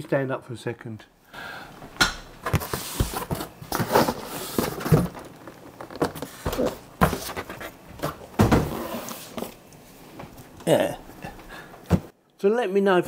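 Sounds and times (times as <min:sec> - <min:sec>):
cardboard scraping and rustling: 0:02.4 - 0:09.6
knocks against box and desk: 0:06.0 - 0:08.7.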